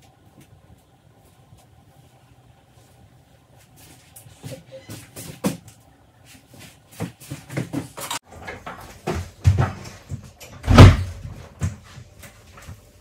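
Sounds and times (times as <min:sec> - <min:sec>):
knocks and clunks of objects: 0:07.0 - 0:12.8
heavy thud: 0:10.6 - 0:11.4.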